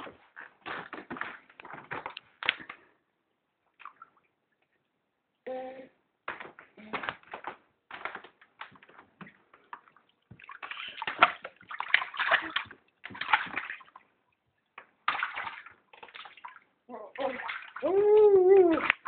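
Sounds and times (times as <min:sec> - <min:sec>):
bath water splashing: 0:00.0 - 0:02.9, 0:03.7 - 0:04.4, 0:07.0 - 0:19.0.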